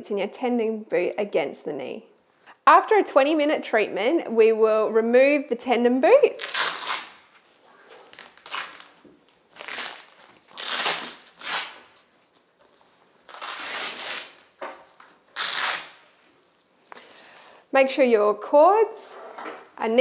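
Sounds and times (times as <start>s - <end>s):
velcro straps ripping open: 6.3s - 17.2s.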